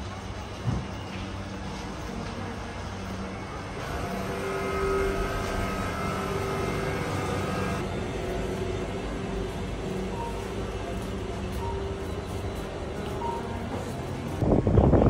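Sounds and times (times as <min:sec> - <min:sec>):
refrigeration equipment humming: 0:01.4 - 0:15.0.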